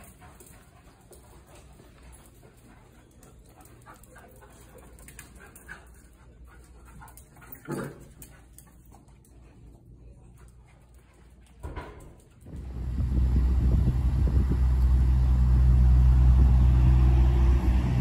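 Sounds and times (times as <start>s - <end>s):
puppies playing: 0.0s - 12.7s.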